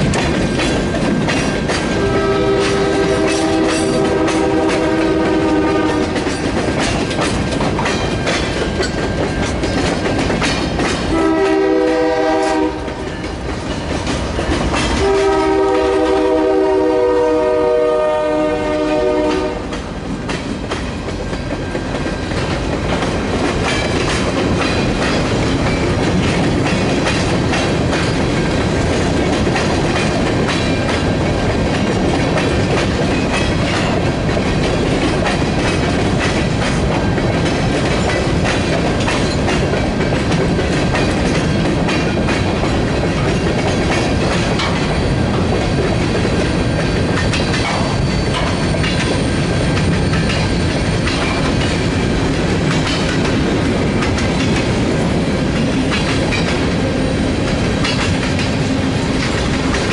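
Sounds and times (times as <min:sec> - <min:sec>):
train wheels clattering over rail joints: 0:00.0 - 0:59.9
locomotive horn: 0:01.9 - 0:06.2, 0:11.1 - 0:13.1, 0:15.0 - 0:19.8.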